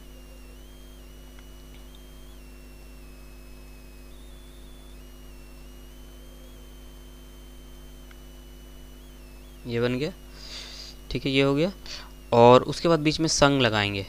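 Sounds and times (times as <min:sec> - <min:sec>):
high-pitched whine stepping in pitch: 0:00.0 - 0:10.2
low electrical hum: 0:00.0 - 0:14.0.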